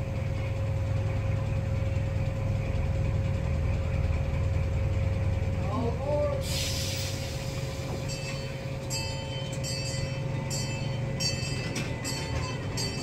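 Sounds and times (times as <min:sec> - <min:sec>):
ride-on train rumble: 0:00.0 - 0:13.0.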